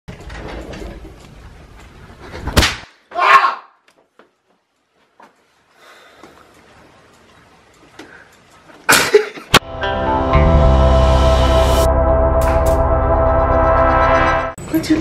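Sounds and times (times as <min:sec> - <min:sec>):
firecracker crack: 0:02.4 - 0:03.1
person yelling: 0:03.1 - 0:03.8.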